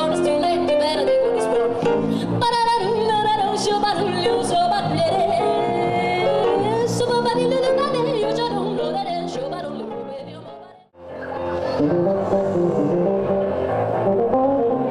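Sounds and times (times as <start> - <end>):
woman singing: 0.0 - 10.9
piano: 0.0 - 14.9
electric bass: 11.7 - 14.9.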